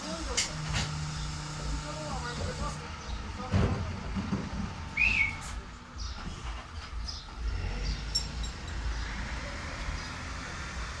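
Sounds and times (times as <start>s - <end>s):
garbage truck engine rumbling: 0.0s - 11.0s
light clinks: 8.0s - 9.0s.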